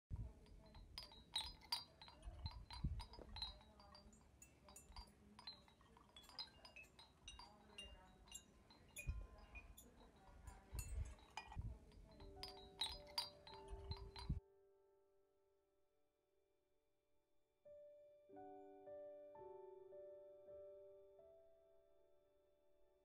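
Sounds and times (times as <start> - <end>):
wind bells clinking: 0.1 - 14.4.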